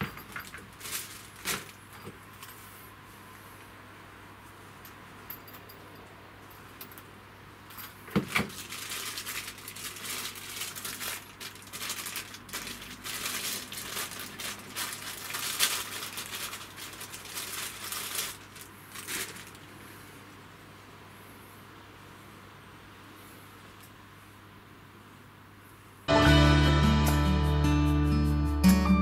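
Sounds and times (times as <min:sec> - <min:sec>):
rustling and crinkling: 0:00.0 - 0:03.8, 0:07.7 - 0:20.3.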